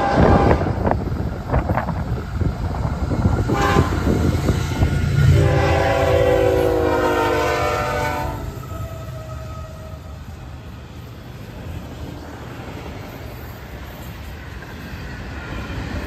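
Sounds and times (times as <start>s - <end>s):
engine and wheels rumbling: 0.0s - 16.0s
locomotive horn chord: 3.5s - 9.8s.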